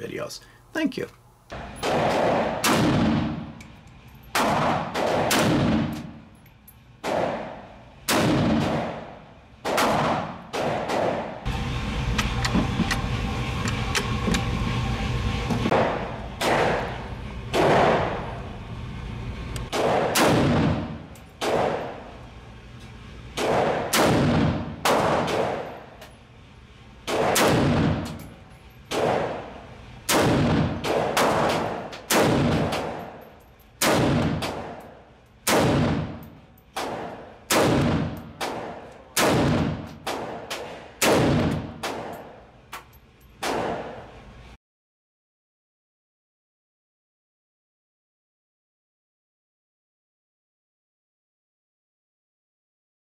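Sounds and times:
pistol shots echoing indoors: 0:01.6 - 0:03.7, 0:04.3 - 0:06.3, 0:07.0 - 0:11.5, 0:15.7 - 0:18.2, 0:19.7 - 0:22.2, 0:23.4 - 0:26.1, 0:27.0 - 0:28.3, 0:28.9 - 0:42.4, 0:43.4 - 0:44.2.

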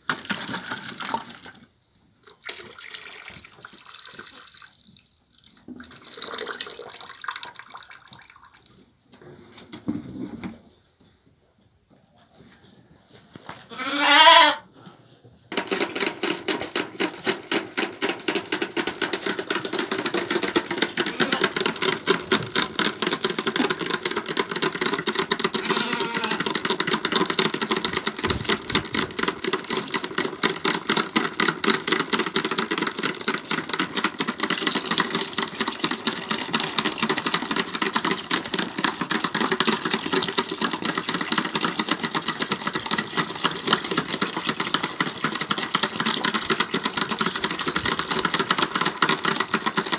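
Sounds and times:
lamb bleating: 0:13.7 - 0:14.7, 0:25.6 - 0:26.4.

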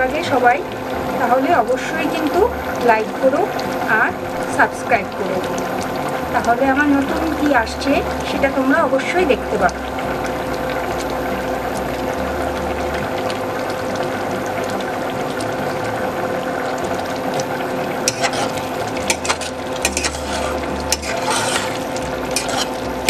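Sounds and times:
cooktop humming: 0:00.0 - 0:23.0
thick food simmering and bubbling: 0:00.0 - 0:23.0
spatula scraping a pot: 0:18.0 - 0:23.0.

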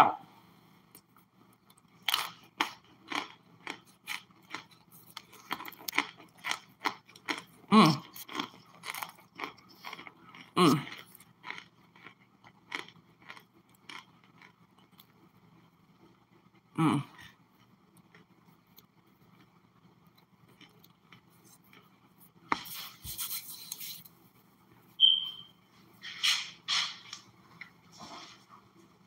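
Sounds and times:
crunching and chewing: 0:00.9 - 0:24.8.

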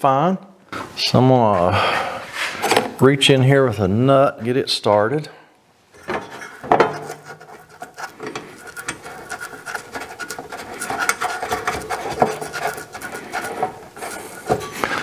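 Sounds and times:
metal scraping and clicking: 0:06.0 - 0:15.0
fingers rubbing metal: 0:06.2 - 0:15.0.

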